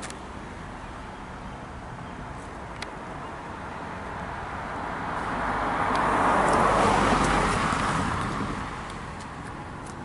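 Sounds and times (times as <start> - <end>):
car driving past: 4.9 - 8.9.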